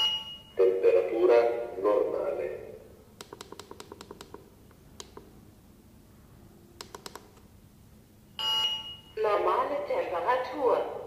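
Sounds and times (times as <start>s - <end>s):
plastic push buttons clicking: 3.2s - 4.4s, 5.0s - 5.3s, 6.8s - 7.4s
electronic beep: 8.4s - 9.1s.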